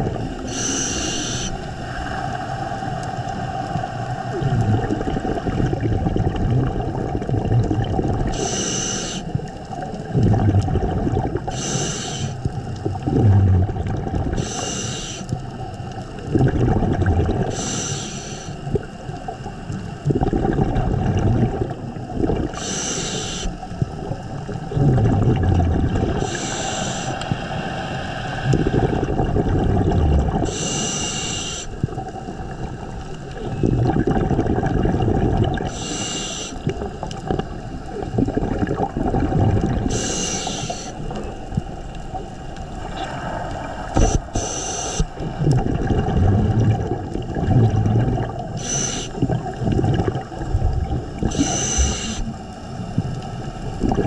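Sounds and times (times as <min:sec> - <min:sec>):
gurgling exhaled bubbles: 0:00.0 - 0:54.0
hissing regulator inhale: 0:00.4 - 0:03.1, 0:08.3 - 0:09.4, 0:11.5 - 0:12.6, 0:14.3 - 0:15.4, 0:17.5 - 0:18.7, 0:22.6 - 0:23.8, 0:26.1 - 0:29.3, 0:30.4 - 0:31.9, 0:35.7 - 0:36.8, 0:39.8 - 0:41.2, 0:42.8 - 0:45.6, 0:48.5 - 0:49.3, 0:51.2 - 0:52.4.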